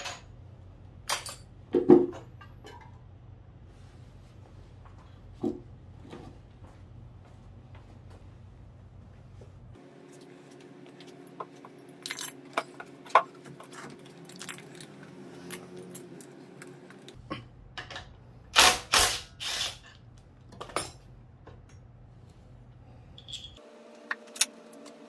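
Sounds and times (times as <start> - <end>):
metal tools clinking: 0.0 - 0.3, 1.0 - 1.5, 11.8 - 12.9, 23.2 - 23.6.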